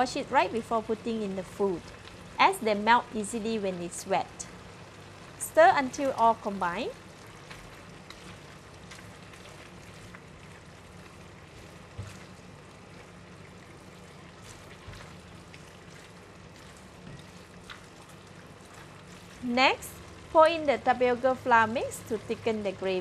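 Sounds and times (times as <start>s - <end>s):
food sizzling in a wok: 0.0s - 23.0s.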